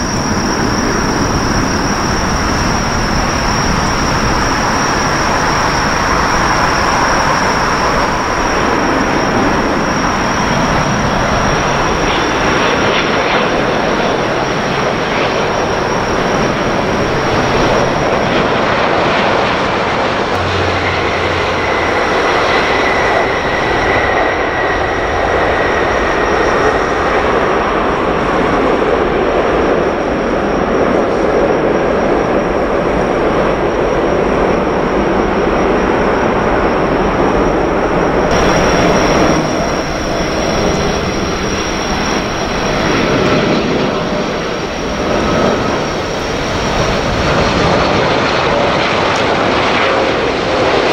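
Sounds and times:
jet engine roar: 0.0 - 50.9
high-pitched tone: 20.3 - 24.9.

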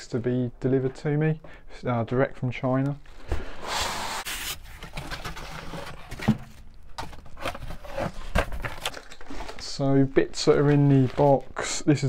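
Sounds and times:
cardboard and foam rustling: 4.0 - 9.9.

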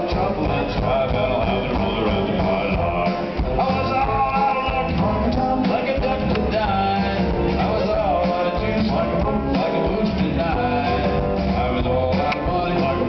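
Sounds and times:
person singing: 0.0 - 13.0
rock band playing live: 0.0 - 13.0.

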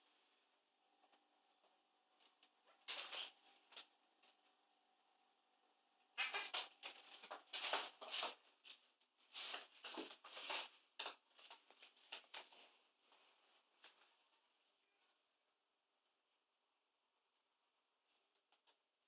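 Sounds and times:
cats scuffling on doormat: 2.7 - 4.4, 6.2 - 14.5.

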